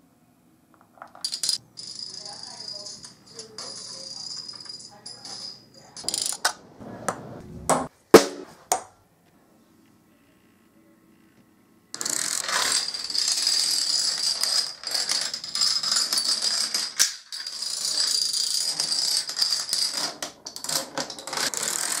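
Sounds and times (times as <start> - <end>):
dominoes clattering on wooden floor: 1.0 - 6.5, 12.0 - 22.0.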